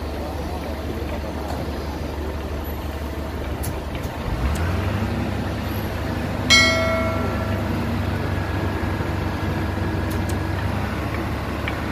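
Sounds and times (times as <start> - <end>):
diesel truck engine droning: 0.0 - 11.9
bright ringing chime: 6.5 - 8.2.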